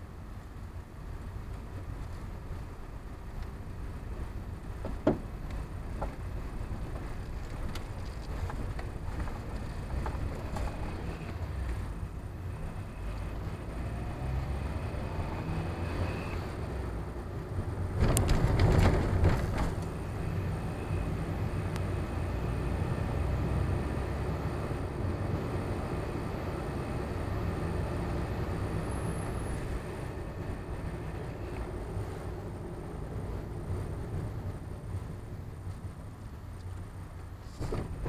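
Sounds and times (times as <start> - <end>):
car engine and tyre noise: 0.0 - 38.0
knocks and rattles: 18.0 - 19.9.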